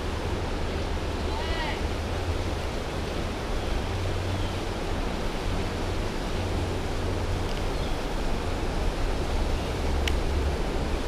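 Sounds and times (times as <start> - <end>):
creek water flowing over rocks: 0.0 - 11.0
wind rumble on microphone: 0.0 - 11.0.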